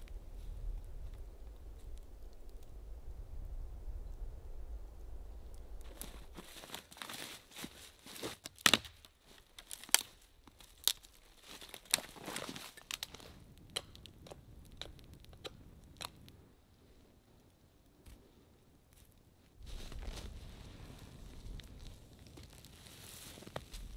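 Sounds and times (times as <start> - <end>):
twigs snapping: 5.8 - 16.4.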